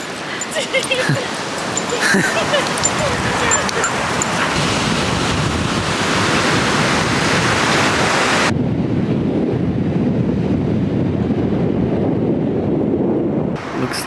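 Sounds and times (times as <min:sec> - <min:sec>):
ocean surf breaking: 0:00.0 - 0:08.6
wind buffeting microphone: 0:00.0 - 0:14.0.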